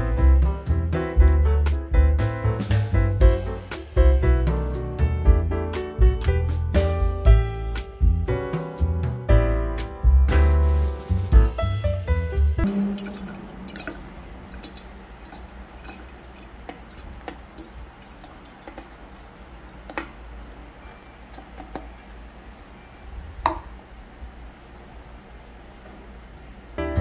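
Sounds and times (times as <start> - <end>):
wet mash dripping and squelching: 12.6 - 20.6.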